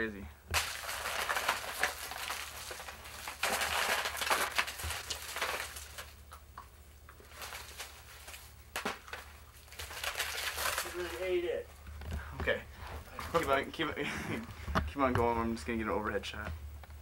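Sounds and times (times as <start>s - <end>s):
plastic grass and wrappers rustling: 0.6s - 6.4s, 7.1s - 14.6s.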